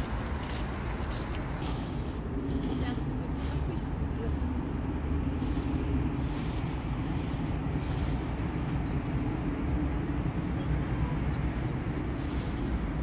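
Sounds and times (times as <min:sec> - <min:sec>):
city traffic rumble: 0:00.0 - 0:13.0.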